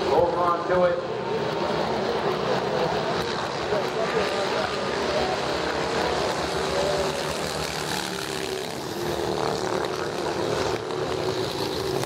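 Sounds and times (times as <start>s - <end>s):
racing motorcycles engine drone: 0.0s - 12.0s.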